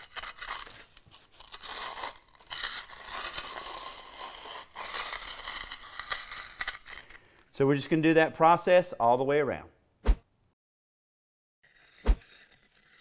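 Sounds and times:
concrete edger scraping: 0.0 - 7.4, 11.6 - 13.0.

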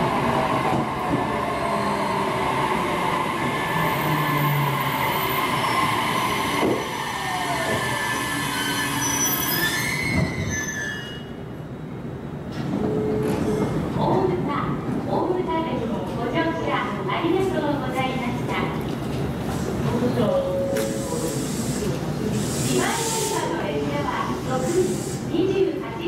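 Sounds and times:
train wheels and brakes squealing: 4.4 - 11.4, 20.8 - 23.6.

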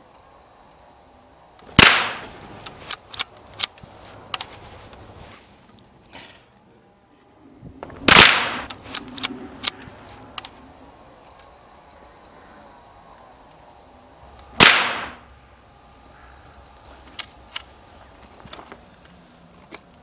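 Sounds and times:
gunshots: 1.8 - 2.3, 8.1 - 8.7, 14.6 - 15.2
small clicks and knocks: 15.4 - 20.0.

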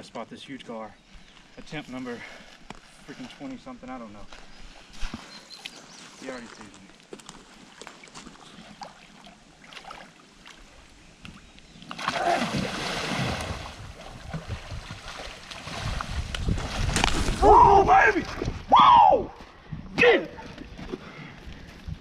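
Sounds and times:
wading through water sloshing: 7.4 - 11.0, 11.7 - 17.4
splashing in river water: 7.6 - 10.8, 11.8 - 18.7.

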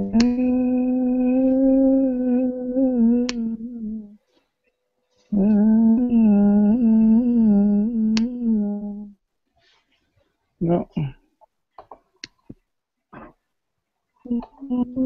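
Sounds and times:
person humming low note: 0.0 - 4.2, 5.3 - 9.2, 14.3 - 15.0.

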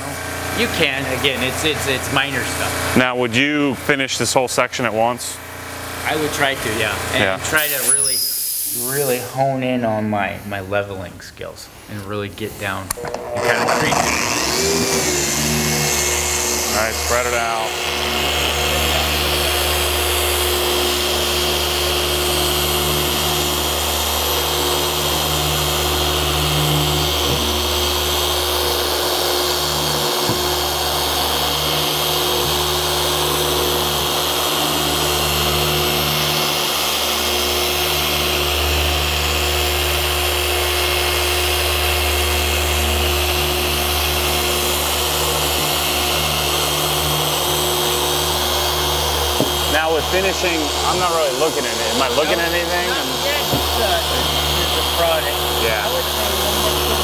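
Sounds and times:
electric polisher running: 13.0 - 57.0.

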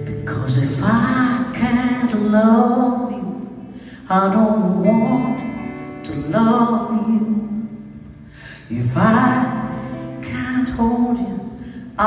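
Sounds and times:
acoustic guitar chords: 0.0 - 12.0
woman singing: 0.2 - 3.4.

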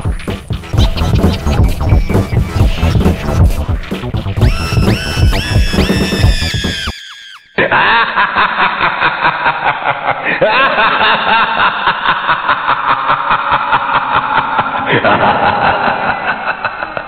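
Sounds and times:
dance music: 0.0 - 7.4
crowd laughing and shouting: 0.8 - 3.2, 4.4 - 17.0.

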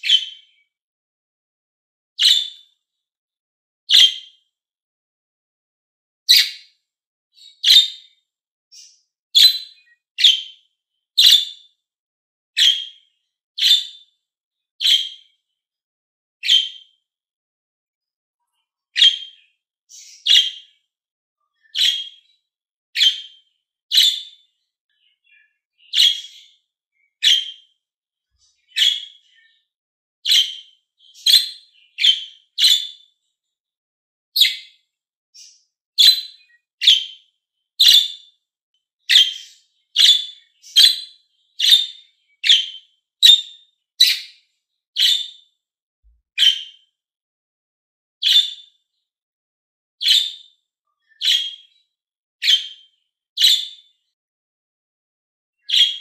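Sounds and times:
budgerigar chirping: 0.0 - 0.4, 2.2 - 2.6, 6.3 - 6.6, 7.6 - 8.0, 8.7 - 10.5, 11.2 - 11.6, 12.6 - 13.0, 13.6 - 14.0, 14.8 - 15.2, 16.4 - 16.8, 19.0 - 20.6, 21.7 - 22.2, 23.0 - 24.4, 25.8 - 26.5, 27.2 - 27.7, 28.7 - 29.2, 30.2 - 33.0, 34.4 - 34.7, 35.4 - 37.2, 37.8 - 38.2, 39.0 - 44.4, 45.0 - 45.4, 46.4 - 46.7, 48.2 - 48.6, 50.0 - 50.4, 51.2 - 51.6, 52.4 - 52.8, 53.4 - 53.8, 55.7 - 56.0.

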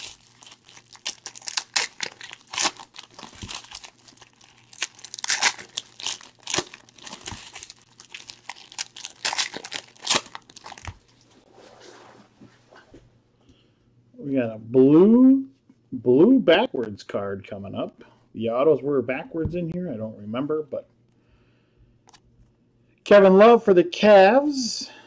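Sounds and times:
foil wrapper crackling: 0.0 - 11.3.

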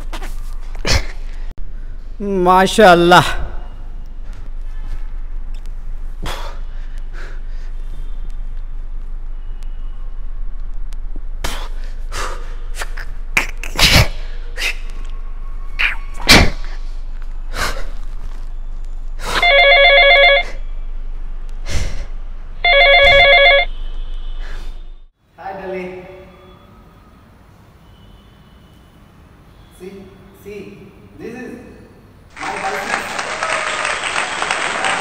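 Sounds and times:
mobile phone ringing: 19.4 - 20.6, 22.6 - 23.7.

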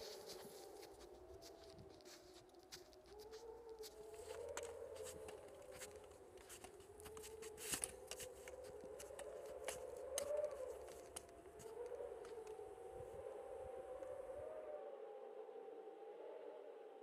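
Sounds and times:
footsteps crunching in snow: 0.0 - 12.6
low howling drone: 0.0 - 17.0.

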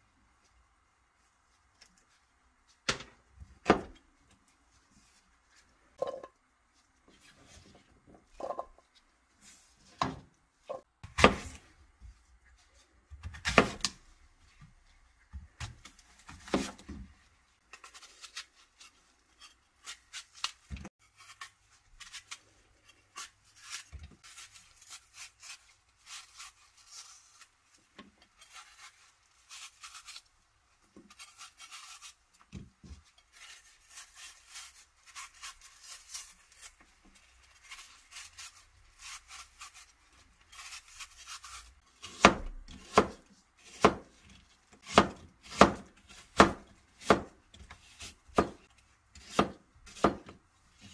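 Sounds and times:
knife scraping apple: 17.6 - 50.9.

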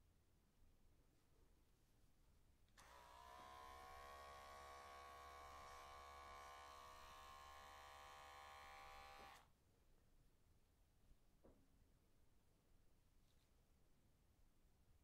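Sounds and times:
electric hair clipper buzzing: 2.8 - 9.5.

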